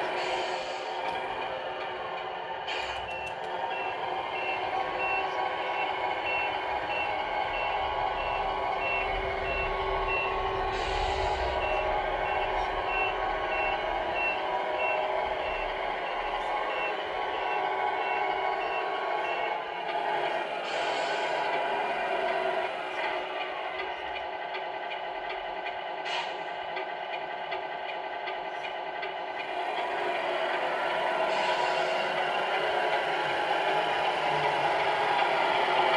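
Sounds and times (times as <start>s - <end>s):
diesel engine running: 0.0s - 35.9s
air brake hiss: 0.1s - 1.1s, 2.7s - 3.2s, 10.7s - 11.6s, 20.6s - 21.5s, 26.0s - 26.5s, 31.3s - 32.1s
reversing beeps: 2.7s - 19.6s.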